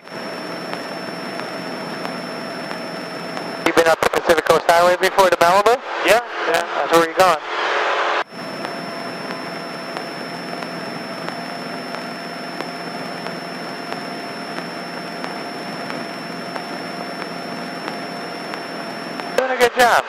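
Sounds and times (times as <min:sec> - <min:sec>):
faint regular ticks: 0:00.0 - 0:03.7, 0:08.4 - 0:19.4
propeller airplane cabin drone: 0:00.0 - 0:05.0, 0:07.5 - 0:19.9.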